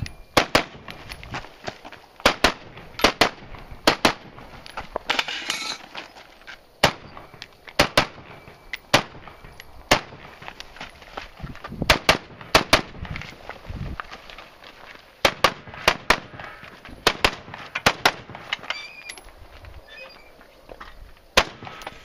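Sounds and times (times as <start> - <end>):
rifle gunshots: 2.2 - 4.3, 21.4 - 21.8.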